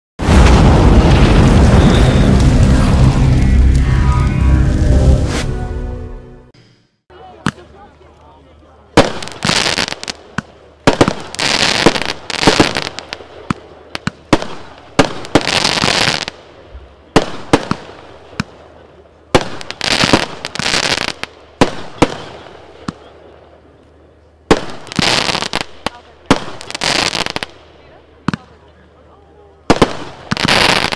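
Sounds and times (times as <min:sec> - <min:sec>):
firework stars crackling: 0:00.2 - 0:05.6, 0:07.4 - 0:23.6, 0:24.4 - 0:30.9
firework launch and burst reports: 0:00.2 - 0:05.8.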